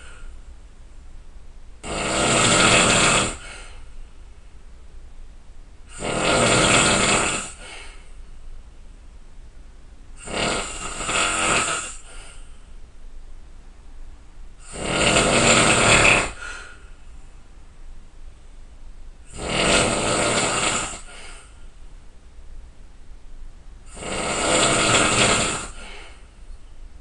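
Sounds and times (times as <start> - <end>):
quiet breathing: 0.0 - 0.5, 2.6 - 4.6, 7.3 - 8.5, 10.8 - 12.8, 14.6 - 17.5, 20.3 - 21.9, 24.8 - 26.8
person snoring loudly: 1.8 - 3.8, 5.9 - 8.0, 10.2 - 12.4, 14.6 - 16.8, 19.3 - 21.5, 23.9 - 26.2.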